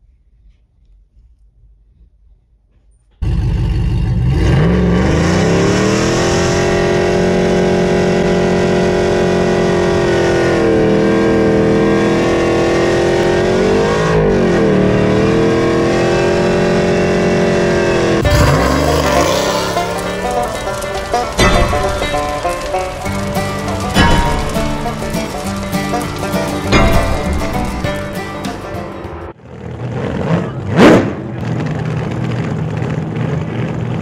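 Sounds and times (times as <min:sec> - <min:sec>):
pickup engine revving hard: 0:03.2 - 0:22.6
tyre spinning on pavement: 0:18.2 - 0:29.0.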